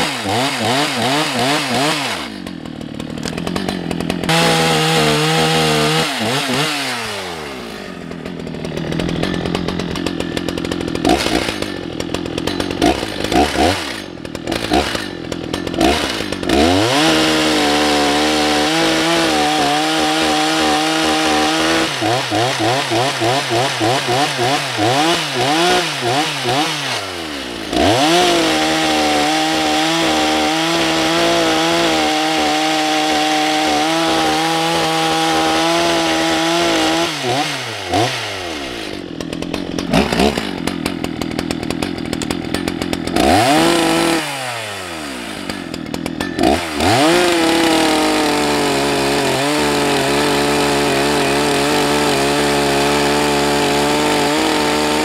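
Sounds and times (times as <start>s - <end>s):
chainsaw cutting logs: 0.0s - 55.0s.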